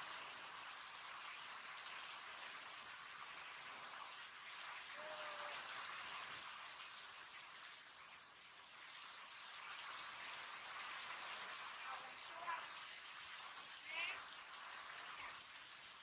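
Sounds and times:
heavy rain on wet ground: 4.6 - 6.6.

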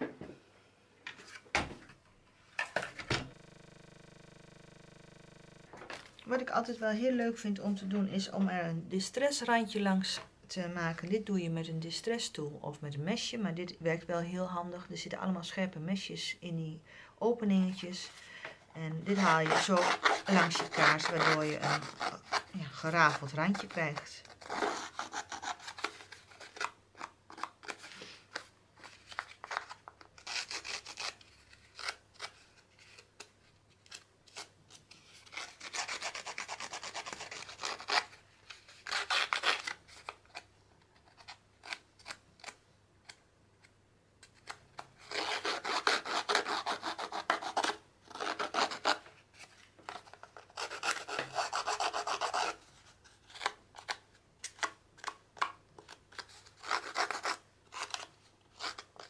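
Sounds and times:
blade scraping paper edge: 19.0 - 28.5, 29.1 - 40.4, 44.3 - 55.2, 55.9 - 59.0.

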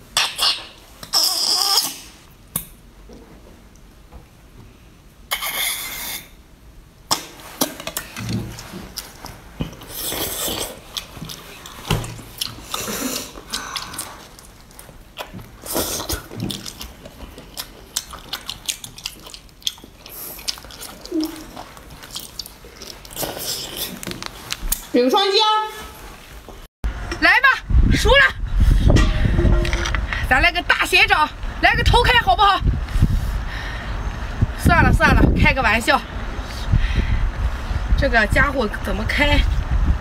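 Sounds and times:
wet biting and chewing: 7.1 - 24.9.

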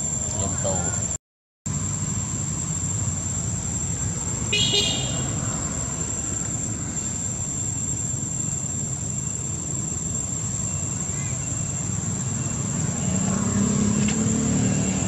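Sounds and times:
thin high whine: 0.0 - 15.0
horn-like toot: 4.5 - 5.4.

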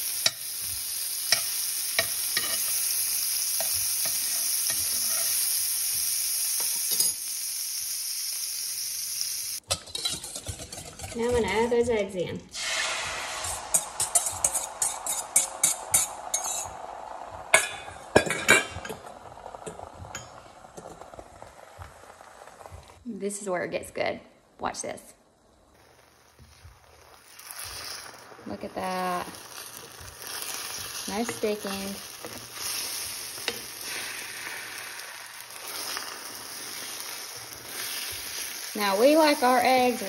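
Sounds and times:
eggs sizzling in a skillet: 0.0 - 23.1, 25.2 - 40.0
wooden spatula stirring in pan: 9.8 - 11.6, 25.8 - 40.0.

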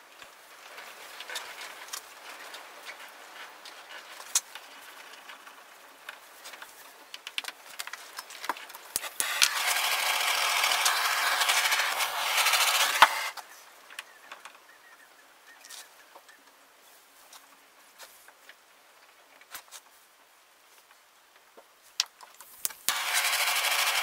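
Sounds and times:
aerosol spray can hissing: 9.0 - 13.3, 22.7 - 24.0.

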